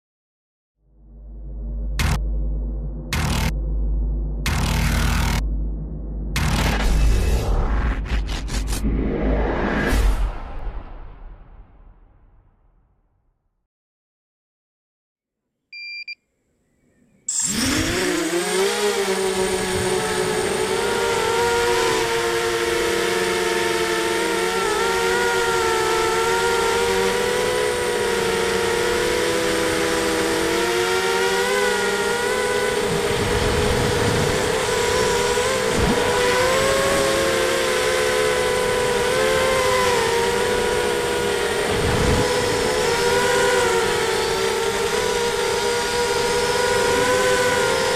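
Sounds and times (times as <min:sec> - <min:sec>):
drone motors whining: 0:01.2 - 0:09.4, 0:17.3 - 0:47.9
short electronic beep: 0:15.7 - 0:16.2.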